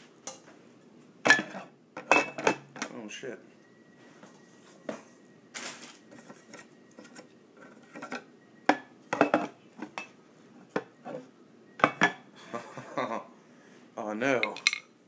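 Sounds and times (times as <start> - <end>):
hookah parts clinking and knocking: 14.4 - 14.9.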